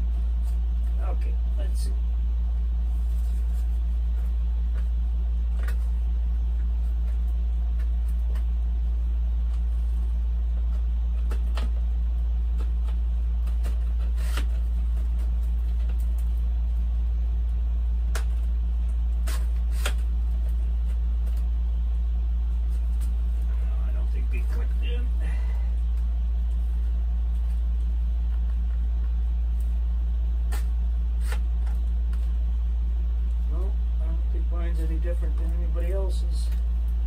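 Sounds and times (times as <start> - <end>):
steady low hum: 0.0 - 37.0.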